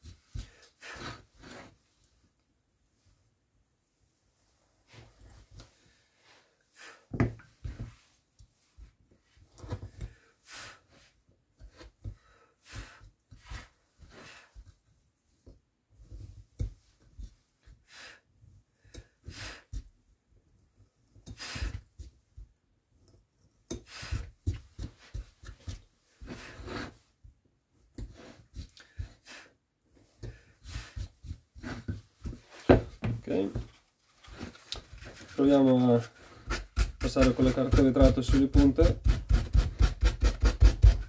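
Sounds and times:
carving tool scraping wood: 0.4 - 1.8, 23.0 - 27.1, 30.2 - 32.8, 34.2 - 41.0.

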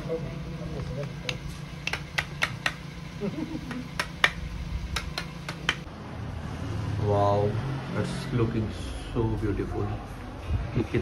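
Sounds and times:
steady low hum: 0.0 - 6.0.

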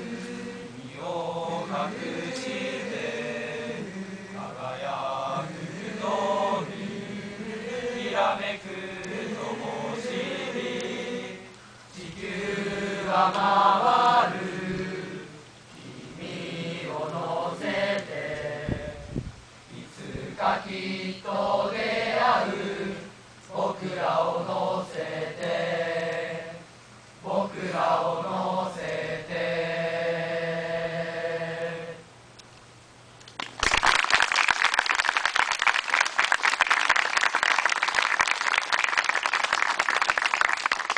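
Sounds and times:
boys choir singing: 0.0 - 32.1
audience applauding: 33.4 - 40.9.

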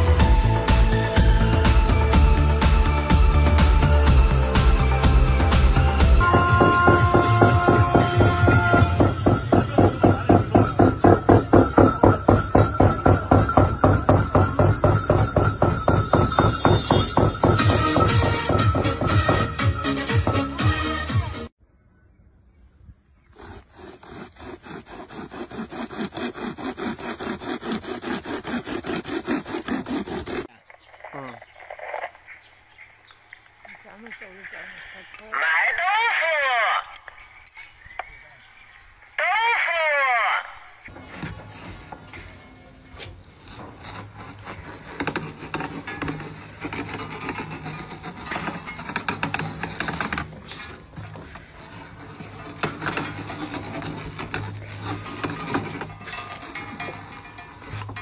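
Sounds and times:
bicycle chain sawing through wood: 0.0 - 20.6, 23.3 - 30.5, 43.1 - 58.0
blade scraping drum hide: 0.0 - 21.2, 40.9 - 58.0.

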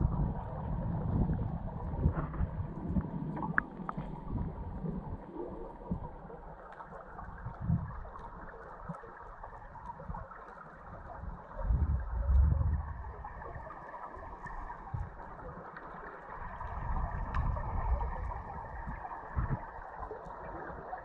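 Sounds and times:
muffled underwater water noise: 0.0 - 21.0
faint ticks: 5.8 - 10.8, 14.4 - 17.6
low rumbling: 11.6 - 13.6.

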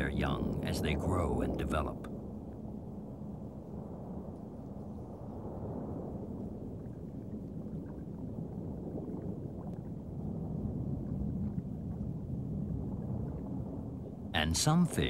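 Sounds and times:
muffled underwater rumble: 0.0 - 15.0.

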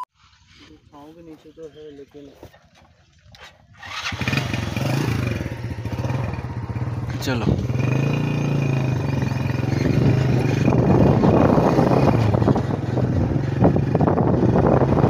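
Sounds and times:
rough rattling noise: 2.8 - 15.0
motorcycle engine running: 3.3 - 15.0.

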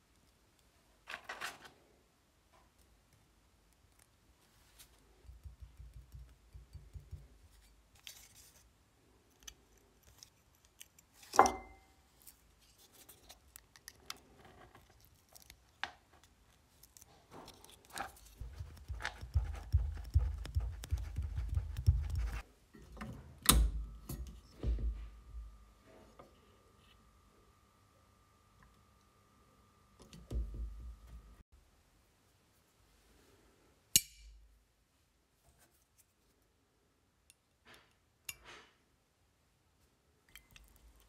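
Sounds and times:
plastic stencil handling taps and rubs: 17.4 - 22.4.

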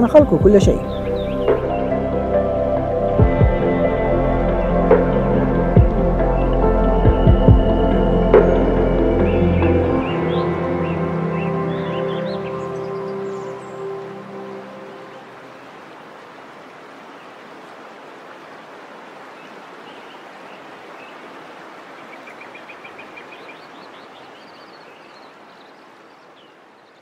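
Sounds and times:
small birds chirping: 0.0 - 2.2, 5.0 - 15.8, 19.2 - 27.0
running water rushing: 0.0 - 27.0.

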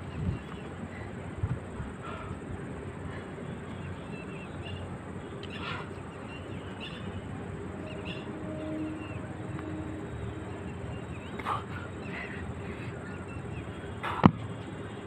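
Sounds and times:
faint bird chirps: 3.1 - 15.0.

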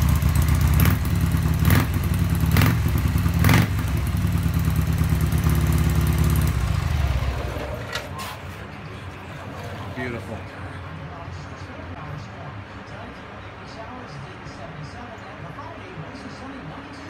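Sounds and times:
motorcycle engine running: 0.0 - 7.9.

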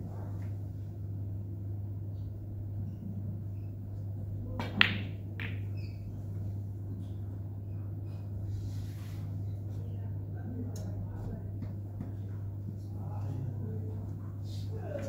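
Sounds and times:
steady low hum: 0.0 - 15.0
cue tip striking ball: 4.6 - 5.7
snooker balls clicking: 4.6 - 5.8.

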